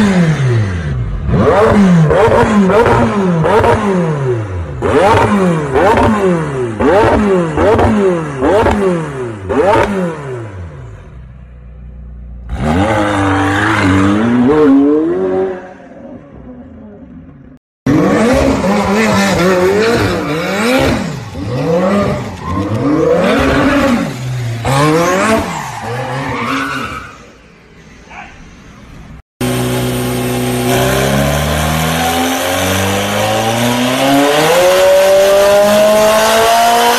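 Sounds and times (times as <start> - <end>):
car engine revving: 0.0 - 11.2, 11.8 - 26.9, 29.4 - 36.9.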